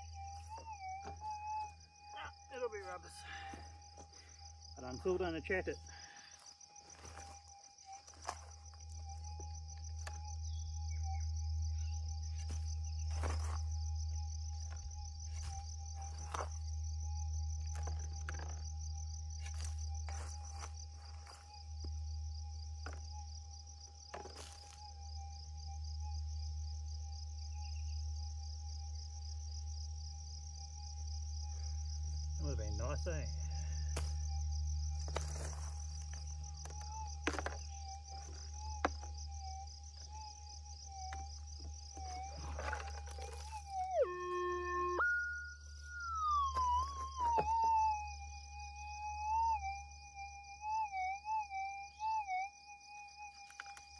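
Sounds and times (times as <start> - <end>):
crickets chirring: 0.0 - 53.9.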